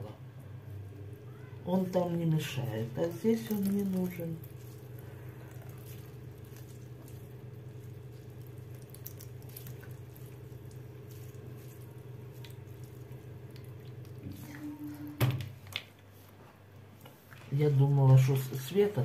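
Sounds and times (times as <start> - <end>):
steady low hum: 0.0 - 19.0
hands squeezing wet zucchini: 1.8 - 14.9
juice dripping into plastic bowl: 2.0 - 14.6, 15.4 - 16.0.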